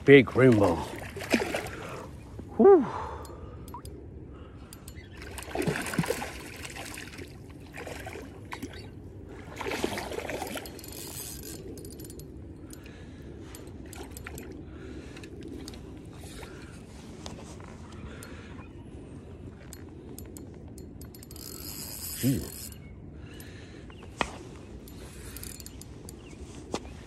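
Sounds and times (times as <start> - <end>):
fish thrashing and splashing: 0.6 - 2.0, 5.1 - 11.8.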